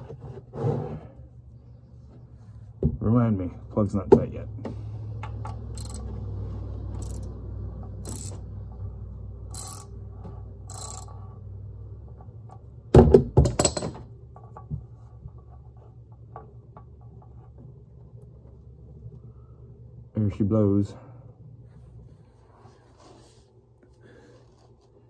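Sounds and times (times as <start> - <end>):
ratchet clicking: 5.7 - 6.1, 6.9 - 7.4, 8.0 - 8.4, 9.5 - 10.0, 10.7 - 11.4
metal knocks clattering: 13.0 - 14.6.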